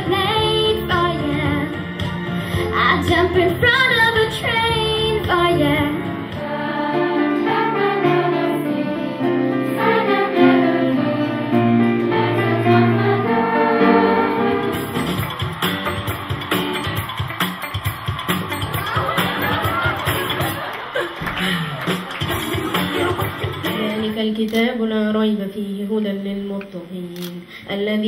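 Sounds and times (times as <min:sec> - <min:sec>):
girl singing into a microphone: 0:00.0 - 0:01.8, 0:02.5 - 0:06.1
choir singing sustained chords: 0:06.1 - 0:15.1.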